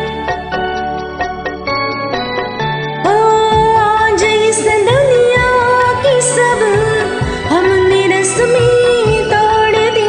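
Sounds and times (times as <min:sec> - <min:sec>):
karaoke backing track with beat: 0:00.0 - 0:10.0
woman singing: 0:03.0 - 0:10.0.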